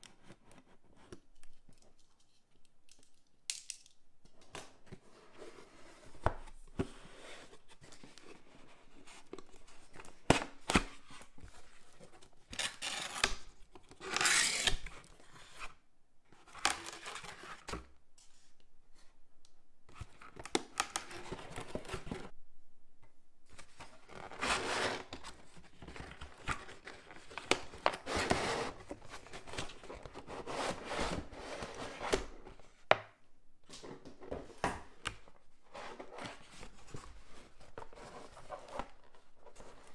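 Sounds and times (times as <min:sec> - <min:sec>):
cardboard scraping and rustling: 0:23.6 - 0:32.7, 0:35.6 - 0:39.9.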